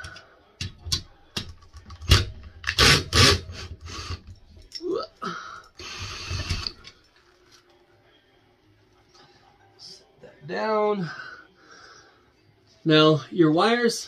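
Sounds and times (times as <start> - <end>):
drill whirring: 2.7 - 4.2.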